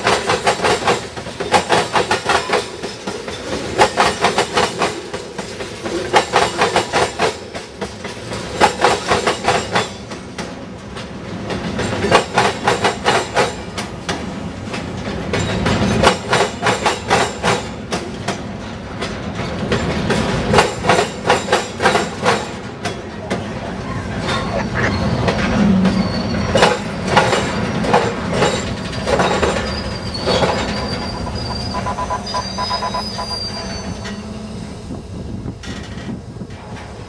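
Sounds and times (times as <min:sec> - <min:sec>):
train wheels rumbling: 0:00.0 - 0:37.0
wheels clacking over rail crossing: 0:00.0 - 0:37.0
high wheel squeal: 0:23.9 - 0:27.9, 0:28.5 - 0:35.0.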